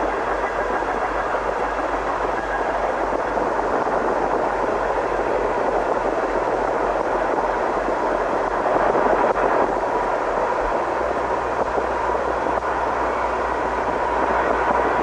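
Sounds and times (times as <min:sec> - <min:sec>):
locomotive rumble: 0:00.0 - 0:15.0.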